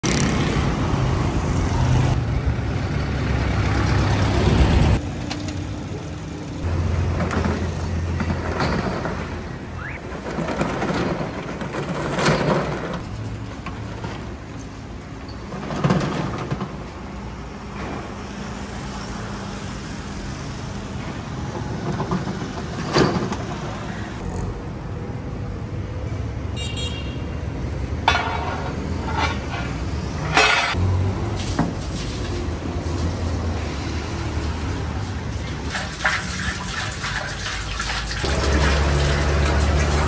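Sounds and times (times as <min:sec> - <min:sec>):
motorcycles passing: 0:00.0 - 0:10.0
cars passing: 0:00.0 - 0:15.2, 0:16.6 - 0:40.0.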